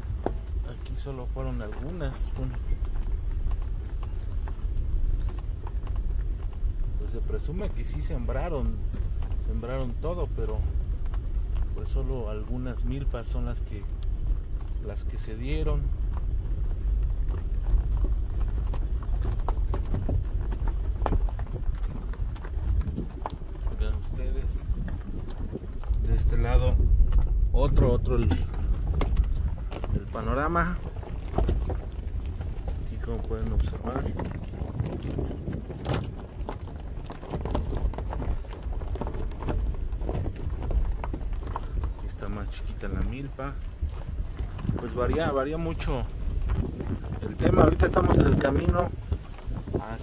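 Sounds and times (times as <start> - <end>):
low rumble: 0.0 - 50.0
footsteps crunching through dry maize: 11.6 - 50.0.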